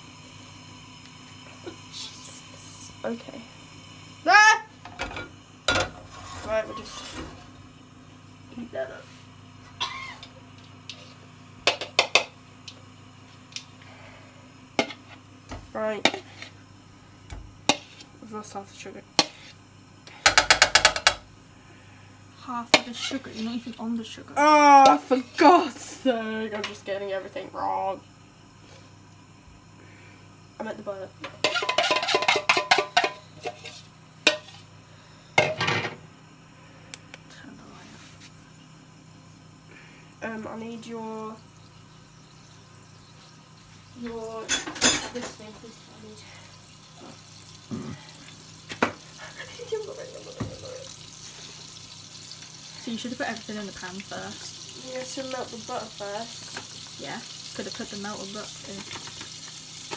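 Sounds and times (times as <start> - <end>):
steady low hum: 0.0 - 56.3
metal spoon scraping saucepan: 5.9 - 7.5, 22.8 - 23.5, 31.3 - 34.6
kitchen utensils clicking and knocking: 20.2 - 21.2, 31.2 - 33.6.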